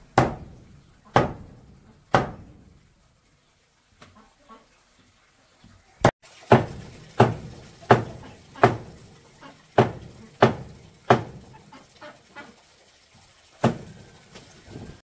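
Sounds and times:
knife chopping meat on wood: 0.2 - 0.5, 1.1 - 1.5, 2.1 - 2.4, 6.5 - 8.9, 9.8 - 11.4.

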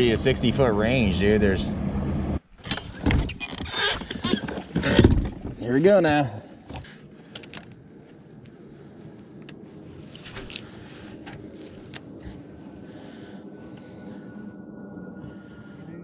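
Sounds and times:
faint thin whine: 7.0 - 16.0.

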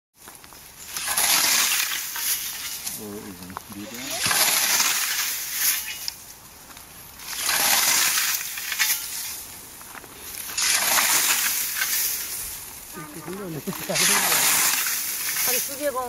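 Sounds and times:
scythe swishing through wheat: 3.9 - 6.1, 10.4 - 12.6, 13.4 - 15.9.

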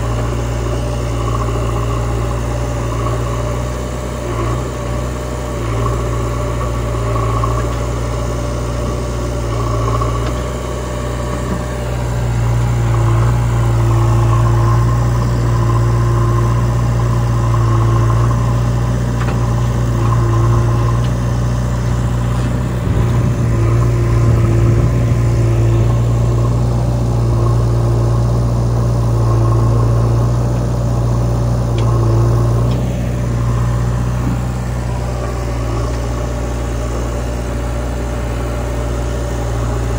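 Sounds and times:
diesel engines running: 0.0 - 39.9.

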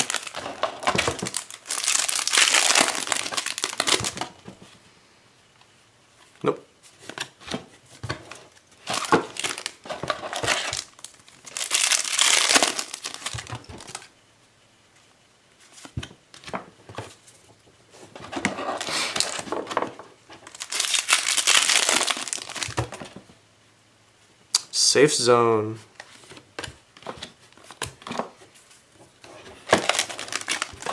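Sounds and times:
foil wrappers crinkling and tearing: 0.0 - 4.3, 8.8 - 14.1, 20.4 - 22.9, 29.7 - 30.9.

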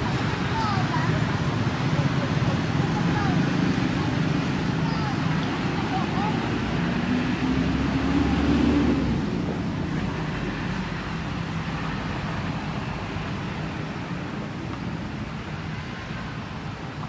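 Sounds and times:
vehicle engine drone: 0.0 - 17.0.

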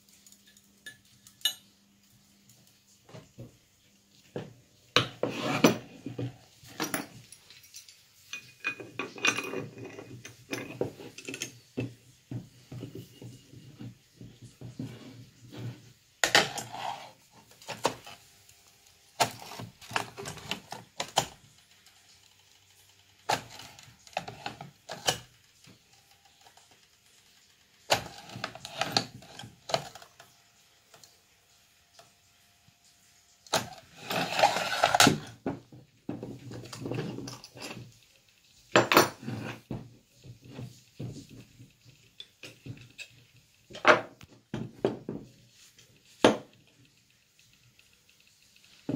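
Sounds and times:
metal clinks and clanks: 6.7 - 11.6.

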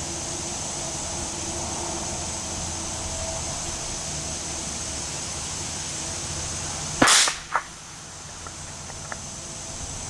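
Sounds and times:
faint crack: 7.0 - 7.8
rifle shot crack: 7.0 - 7.8.

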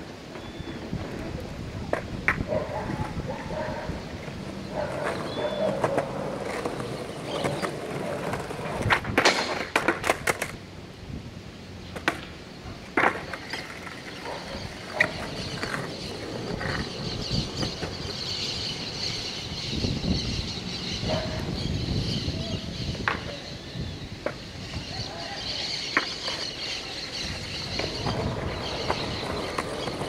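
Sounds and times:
skateboard wheels rolling: 0.0 - 30.0
skateboard clacking on ground: 0.3 - 10.6, 11.9 - 18.3, 22.9 - 23.5, 25.4 - 30.0.

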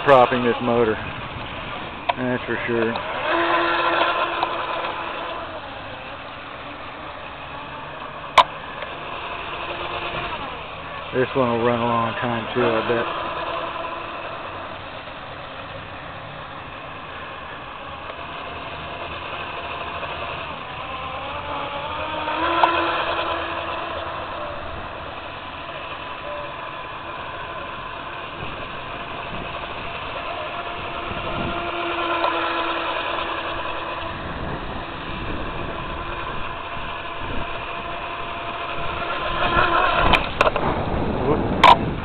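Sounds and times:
small electric motor whining: 0.0 - 42.0.

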